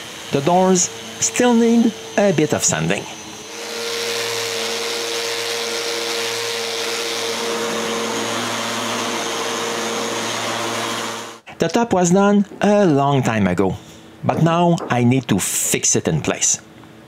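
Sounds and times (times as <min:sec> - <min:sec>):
electric sander whirring: 0:00.0 - 0:11.4.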